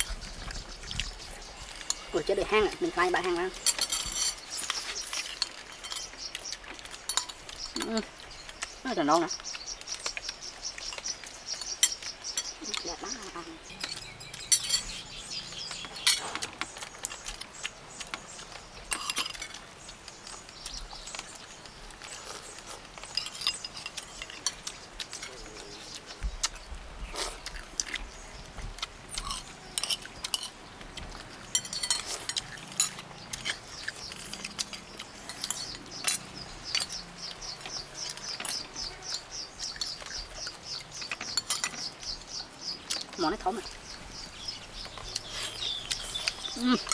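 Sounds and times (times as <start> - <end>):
chewing: 0.0 - 46.9
spoons clinking on plates: 3.2 - 6.2, 7.0 - 8.0, 10.9 - 12.9, 13.7 - 15.2, 18.9 - 19.6, 23.1 - 25.4, 29.2 - 30.6, 31.5 - 37.0, 41.0 - 41.9.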